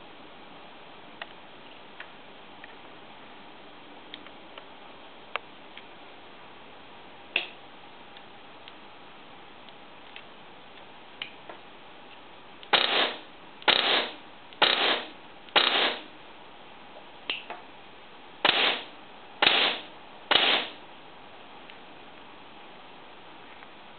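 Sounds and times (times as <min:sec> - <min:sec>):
airsoft rifle shots: 0:12.7 - 0:16.1, 0:18.4 - 0:20.8.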